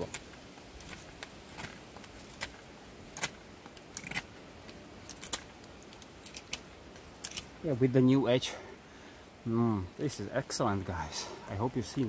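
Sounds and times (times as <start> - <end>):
knife scraping wood: 0.8 - 4.3.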